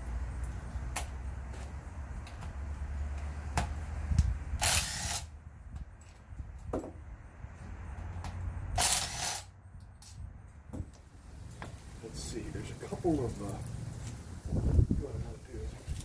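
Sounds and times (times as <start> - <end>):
cordless drill spinning bolts: 4.6 - 5.3, 8.8 - 9.5.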